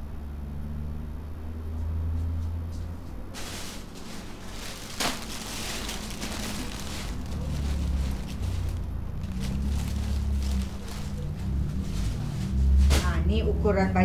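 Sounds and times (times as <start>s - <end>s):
steady low hum: 0.0s - 14.0s
plastic bag rustling: 3.3s - 13.1s.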